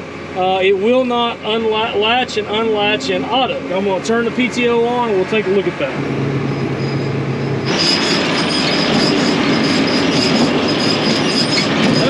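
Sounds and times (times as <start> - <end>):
tractor engine running: 0.0 - 12.0
baler mechanical clatter: 0.9 - 12.0
thin high squeal: 6.3 - 12.0.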